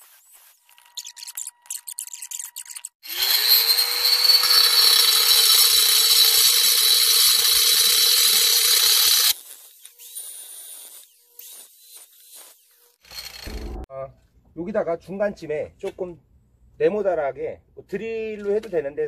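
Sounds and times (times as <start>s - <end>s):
angle grinder cutting: 2.9s - 13.9s
grinder motor whine: 3.0s - 9.4s.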